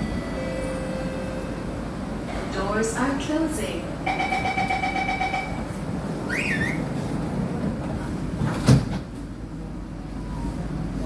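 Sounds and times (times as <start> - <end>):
train humming: 0.0 - 11.0
train doors sliding shut: 5.7 - 9.4
short squeal: 6.3 - 6.9.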